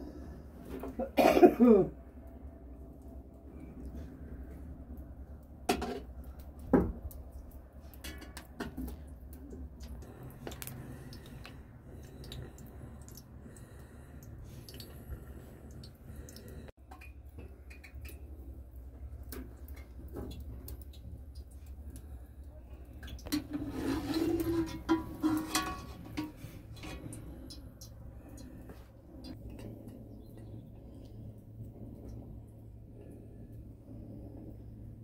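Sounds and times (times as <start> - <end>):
low steady hum: 0.0 - 35.0
pots and utensils clinking: 23.2 - 27.2.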